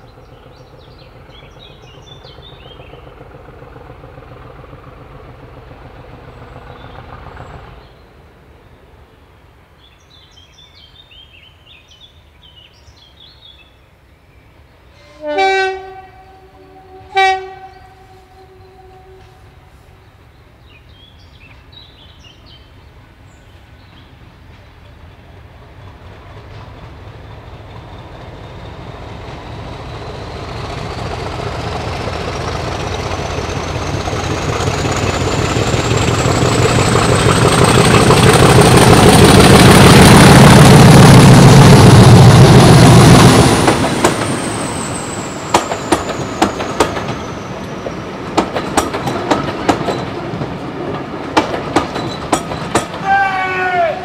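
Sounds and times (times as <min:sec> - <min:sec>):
diesel locomotive engine whining: 0:00.0 - 0:09.8, 0:14.1 - 0:54.0
train wheels clickety-clack: 0:23.8 - 0:53.5.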